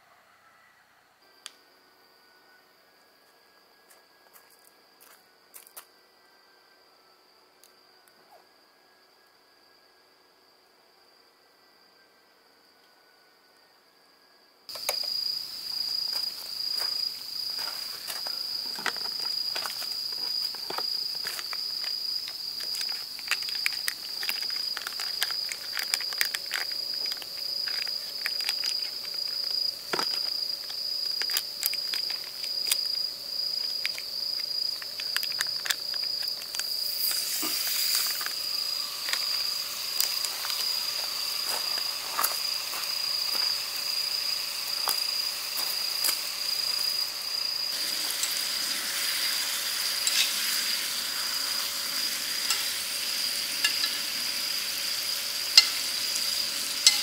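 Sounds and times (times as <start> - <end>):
crickets chirring: 1.2 - 57.0
clicks and rustles of food handling: 18.0 - 38.4
food sizzling on griddle: 36.8 - 57.0.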